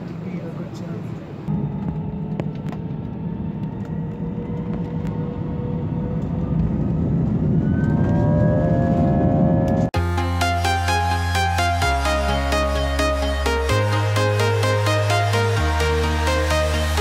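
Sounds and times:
jet engine whine rising: 0.0 - 10.0
jet engines roaring in cabin: 0.0 - 10.0.

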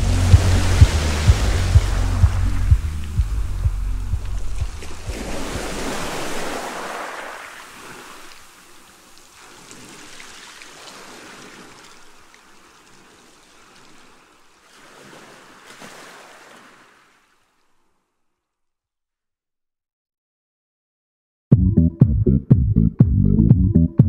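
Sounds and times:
wind noise on microphone: 0.0 - 6.2
water rushing past hull: 0.0 - 17.9.

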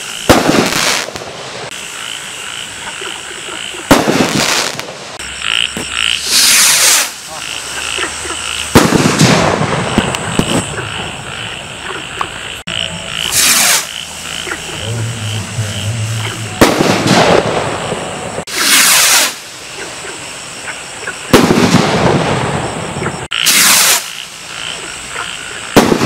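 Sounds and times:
firework bang and crackle: 0.0 - 1.9, 3.8 - 7.3, 8.7 - 11.2, 13.3 - 13.9, 16.6 - 19.6, 21.3 - 24.4, 25.7 - 26.0
firework rocket whoosh: 6.2 - 7.3, 13.3 - 13.9, 16.6 - 19.6, 21.3 - 24.2.

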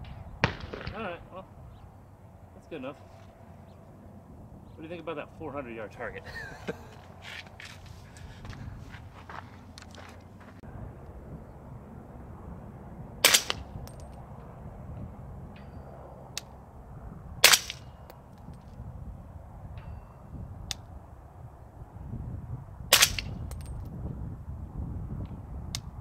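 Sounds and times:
suppressed rifle shots: 0.0 - 1.2, 13.2 - 14.0, 17.4 - 17.8, 22.9 - 23.3
wind rumbling on microphone: 0.0 - 26.0.

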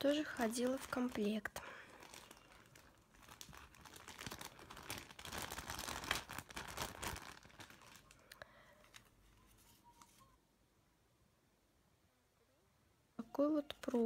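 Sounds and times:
plastic bag crinkling: 0.0 - 10.2.

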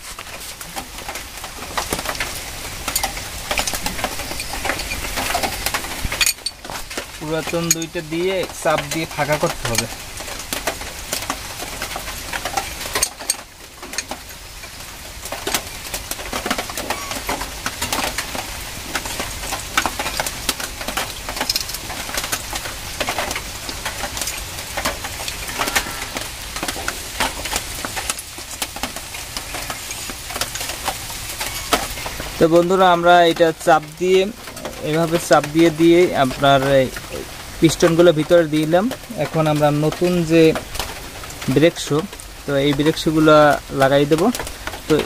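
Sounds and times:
screwdriver scraping metal: 2.9 - 6.6.

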